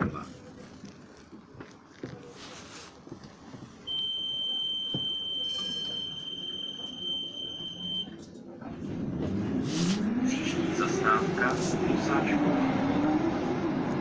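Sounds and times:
high-pitched warning beep: 0:03.9 - 0:08.2.

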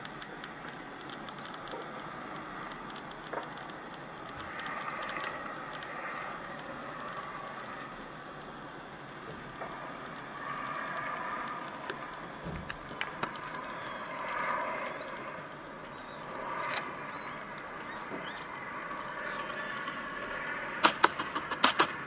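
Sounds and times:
sharp cracks: 0:20.8 - 0:22.0.

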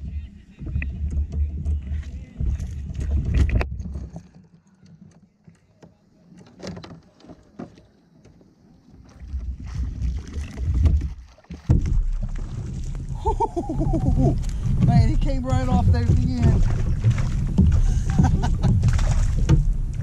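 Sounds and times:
wind rumble on microphone: 0:00.0 - 0:04.2, 0:09.2 - 0:20.0
water splashing: 0:06.2 - 0:20.0.

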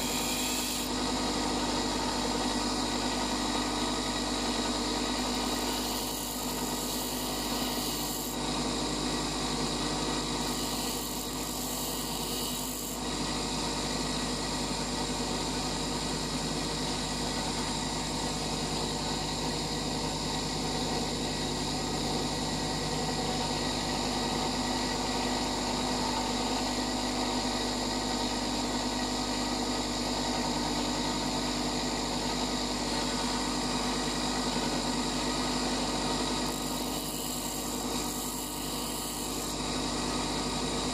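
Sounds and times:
drill bit grinding on wheel: 0:00.0 - 0:01.2, 0:04.8 - 0:08.7, 0:10.0 - 0:13.6, 0:35.4 - 0:40.3
bench grinder motor hum: 0:00.0 - 0:40.9.

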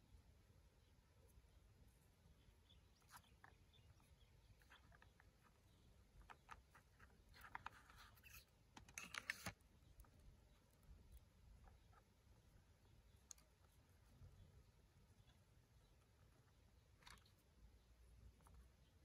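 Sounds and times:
plastic toys clicking and scraping: 0:03.1 - 0:10.2.

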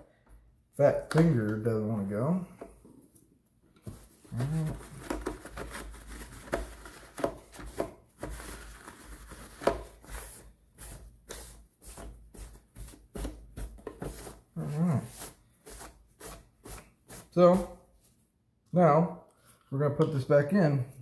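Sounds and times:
paper towel wiping plastic: 0:03.8 - 0:18.1.

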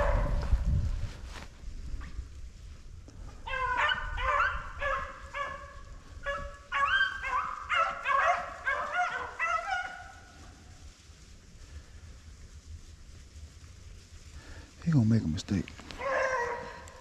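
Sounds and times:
dogs baying: 0:03.4 - 0:10.2, 0:16.0 - 0:17.0.

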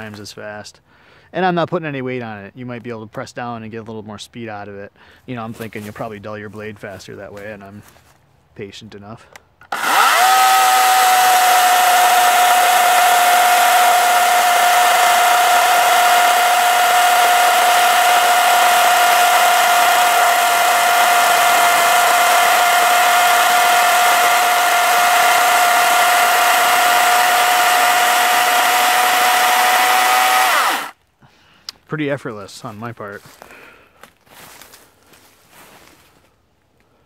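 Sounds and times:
electric chainsaw cutting log: 0:09.6 - 0:31.0.

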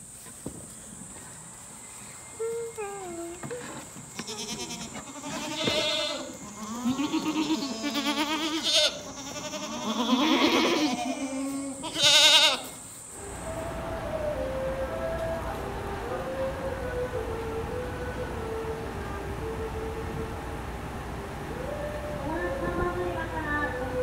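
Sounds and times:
goats bleating: 0:03.2 - 0:12.8.

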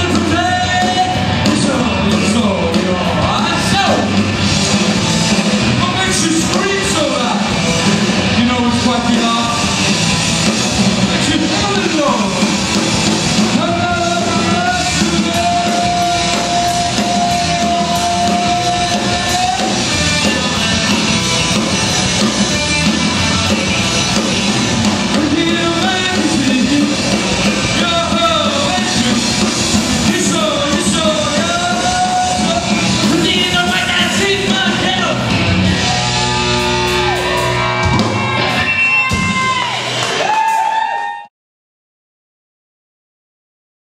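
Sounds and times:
electric guitar: 0:00.0 - 0:41.2
drums: 0:00.0 - 0:41.3
person singing: 0:13.6 - 0:21.0, 0:25.1 - 0:35.2.

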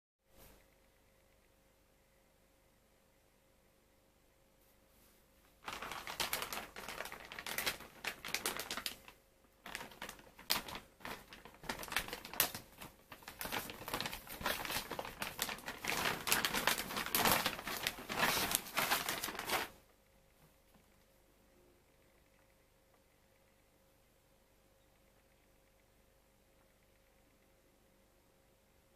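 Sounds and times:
plastic bag crinkling: 0:05.6 - 0:19.8.

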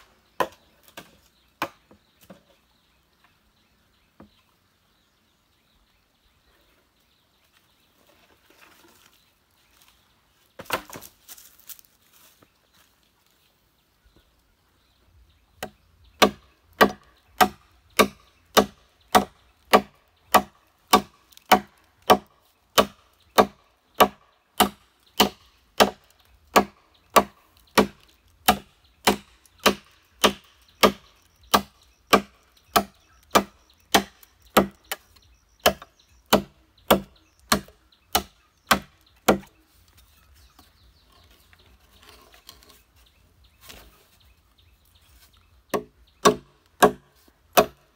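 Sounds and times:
machete chopping bamboo: 0:00.3 - 0:02.4, 0:10.6 - 0:11.1, 0:15.6 - 0:39.6, 0:45.7 - 0:47.9.

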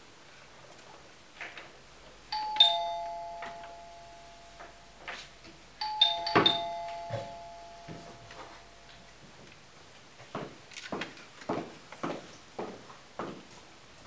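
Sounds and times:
two-tone doorbell chime: 0:02.3 - 0:09.2.

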